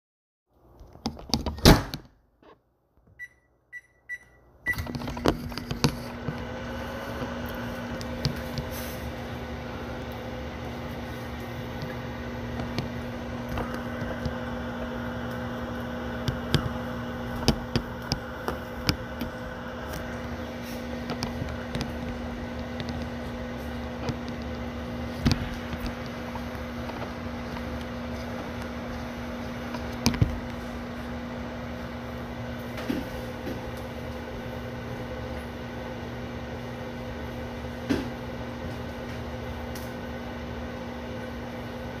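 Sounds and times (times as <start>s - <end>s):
microwave oven humming: 3.1s - 42.0s
keypad beeps: 3.2s - 4.9s.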